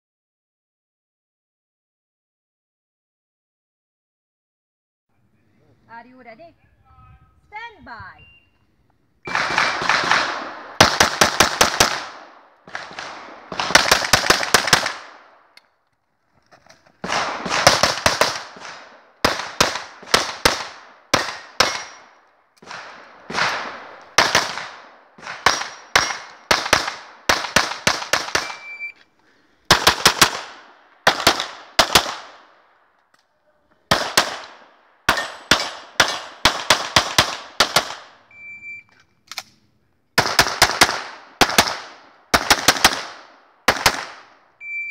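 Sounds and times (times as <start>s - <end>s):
pistol shots with echo: 9.3s - 15.4s, 17.0s - 28.9s, 29.7s - 32.6s, 33.9s - 38.2s, 40.2s - 44.3s.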